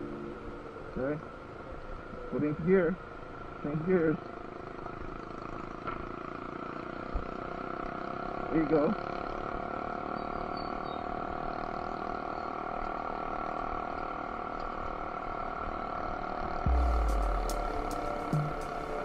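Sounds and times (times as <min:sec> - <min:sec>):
motorcycle engine running: 0:00.0 - 0:19.0
road noise: 0:00.0 - 0:19.0
deep rumble: 0:16.7 - 0:19.0.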